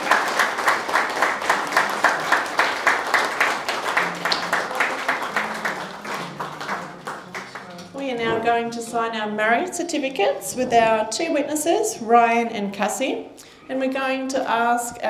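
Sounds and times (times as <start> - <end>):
close hand clapping: 0.0 - 8.0
guests applauding: 0.0 - 8.0.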